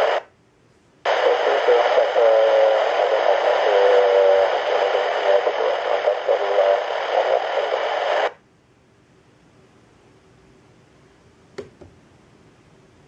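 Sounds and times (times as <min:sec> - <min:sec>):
radio static hiss: 0:00.0 - 0:00.3, 0:01.0 - 0:08.4.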